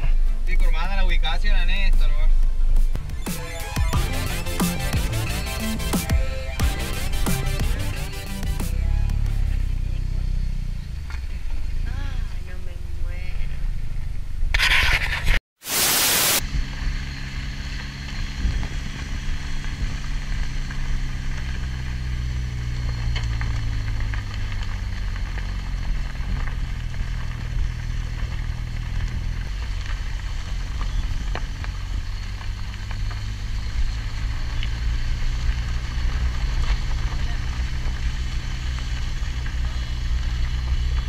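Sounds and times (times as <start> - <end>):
car engine hum: 0.0 - 14.6, 16.4 - 41.0
loud hiss burst: 15.6 - 16.4
tyres on gravel hissing: 15.6 - 16.4.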